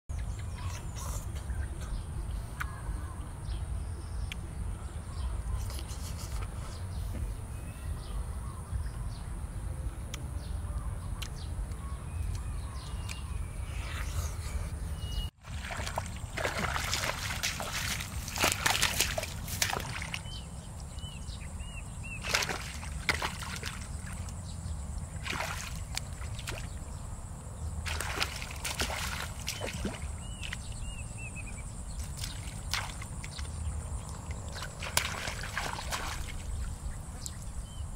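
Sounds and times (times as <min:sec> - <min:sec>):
muddy water splashing: 0:15.4 - 0:37.9.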